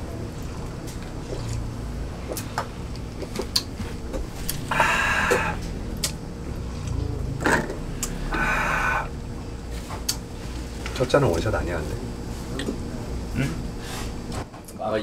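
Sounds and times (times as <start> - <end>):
restaurant room noise: 0.0 - 15.0.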